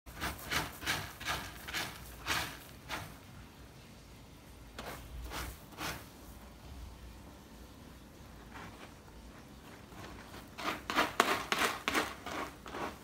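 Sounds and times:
cat scratching pellet litter: 0.1s - 3.4s, 4.7s - 6.4s, 8.2s - 13.0s.

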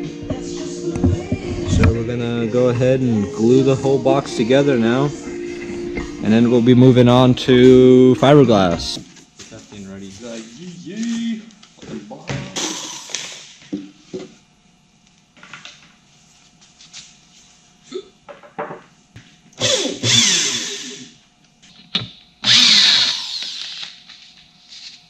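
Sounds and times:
cordless drill driving screws: 19.6s - 21.0s, 22.4s - 23.8s.

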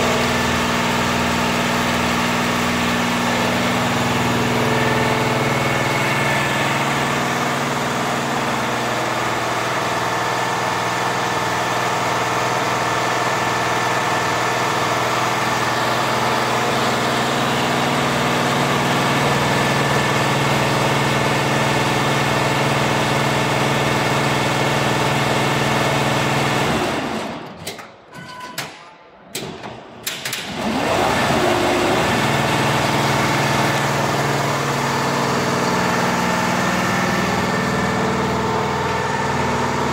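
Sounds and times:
embroidery machine humming: 0.0s - 12.3s, 30.5s - 39.9s.

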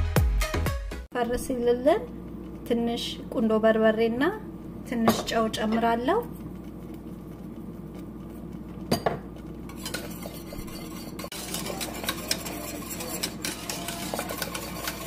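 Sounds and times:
utensil clinking in metal pot: 8.9s - 15.0s.

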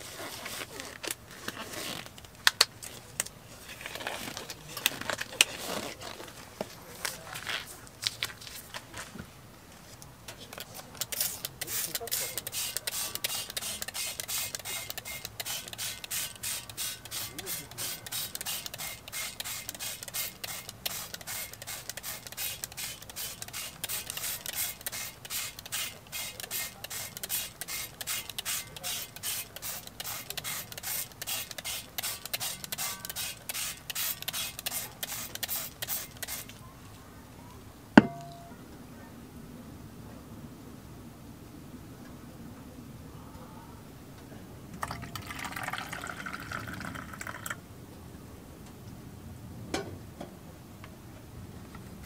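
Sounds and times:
spray bottle hissing sprays: 11.1s - 36.6s
sharp knock: 38.0s - 38.5s.

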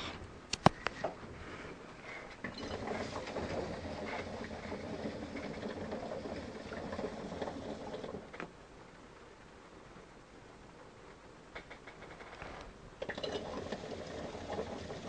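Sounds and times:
hookah water bubbling: 2.4s - 8.4s, 13.0s - 15.0s.

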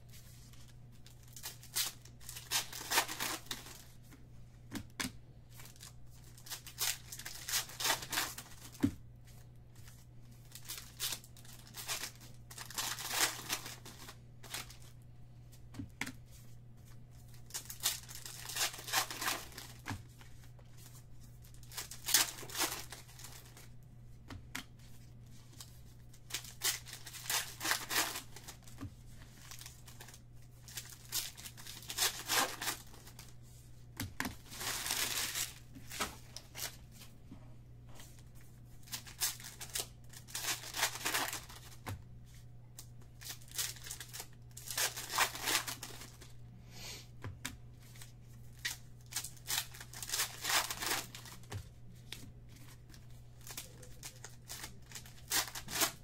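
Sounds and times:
foil wrappers tearing and crinkling: 1.0s - 3.9s, 5.6s - 8.8s, 10.5s - 14.9s, 17.4s - 19.9s, 21.5s - 23.7s, 25.6s - 33.3s, 34.3s - 36.8s, 38.8s - 41.8s, 43.2s - 46.3s, 48.5s - 51.6s, 52.9s - 56.0s.

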